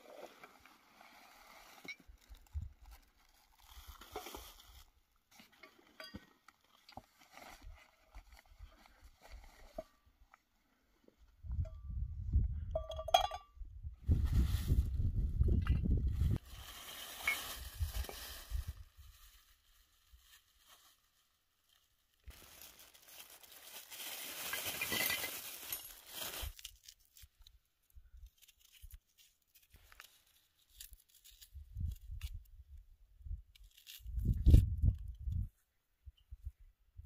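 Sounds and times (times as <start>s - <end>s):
plastic bag crinkling: 16.4s - 27.2s.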